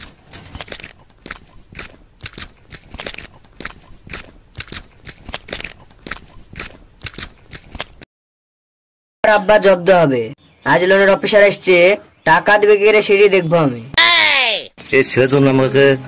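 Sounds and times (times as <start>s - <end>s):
footsteps on gritty path: 0.0s - 8.0s.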